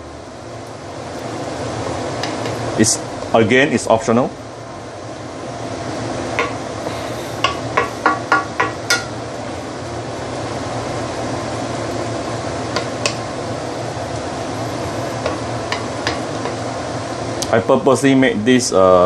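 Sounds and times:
steady hiss: 0:00.0 - 0:19.0
wooden spatula tapping frying pan: 0:02.2 - 0:02.6, 0:06.4 - 0:06.6, 0:07.4 - 0:09.2, 0:12.7 - 0:13.2, 0:15.2 - 0:16.7.

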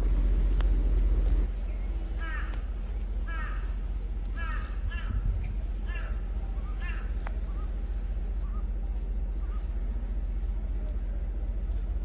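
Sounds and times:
low rumble: 0:00.0 - 0:12.0
crow cawing: 0:02.2 - 0:07.2.

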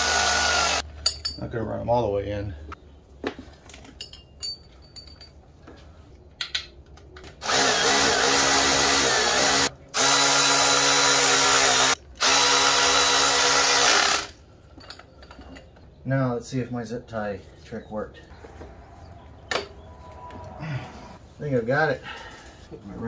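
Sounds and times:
power tool running bolts: 0:00.0 - 0:00.8, 0:07.4 - 0:14.4.

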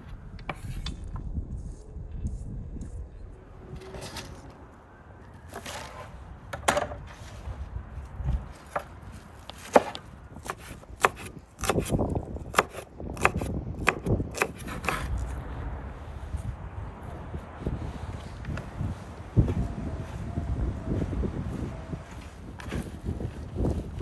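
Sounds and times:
cleaver chopping on wooden board: 0:09.5 - 0:15.1.

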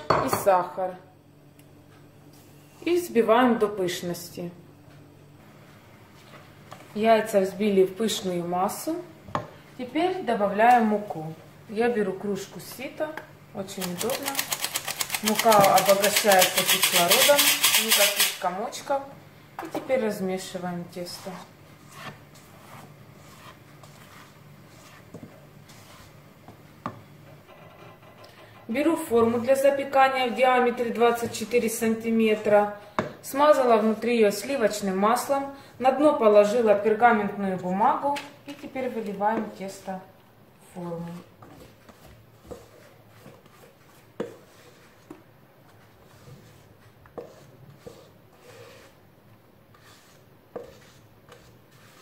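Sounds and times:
spatula folding batter in bowl: 0:12.7 - 0:18.5, 0:20.9 - 0:28.1, 0:41.0 - 0:52.0.

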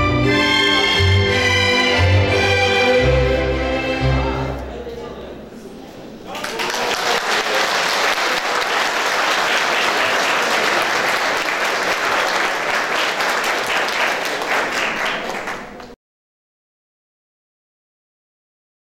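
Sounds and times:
audience applauding: 0:06.3 - 0:16.0.

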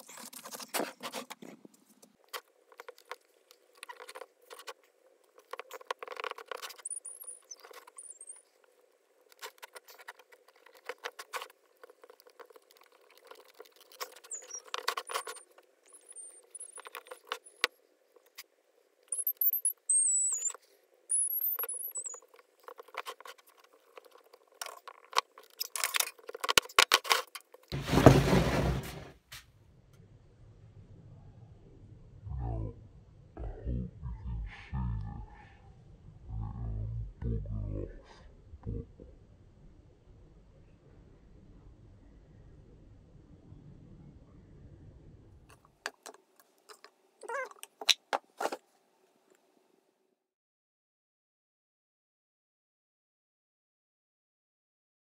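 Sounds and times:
hands scuffing wooden crate: 0:27.8 - 0:29.1
crate bump: 0:27.8 - 0:29.2.

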